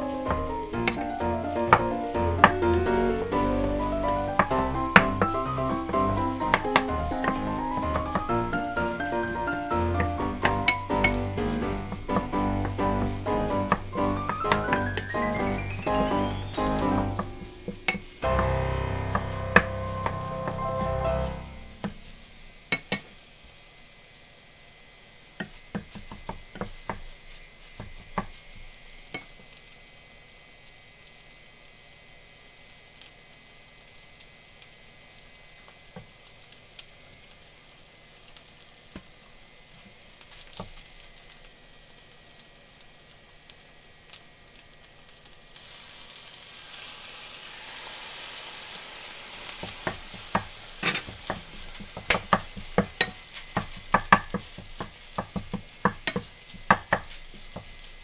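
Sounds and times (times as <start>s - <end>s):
rice sizzling in a frying pan: 0.0s - 58.0s
spatula tapping and scraping pan: 13.7s - 15.0s, 49.8s - 57.8s.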